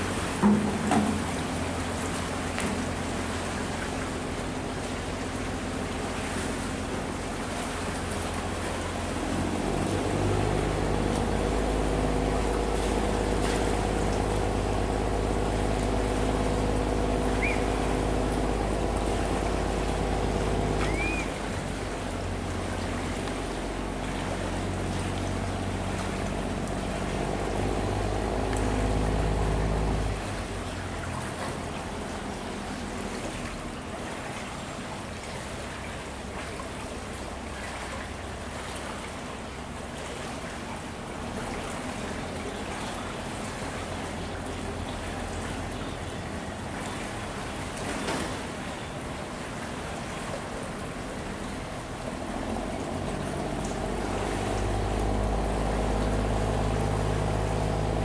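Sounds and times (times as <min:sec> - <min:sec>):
boat engine running hard: 0:00.0 - 0:58.0
rushing water: 0:00.0 - 0:58.0
short high chirps: 0:20.8 - 0:21.3.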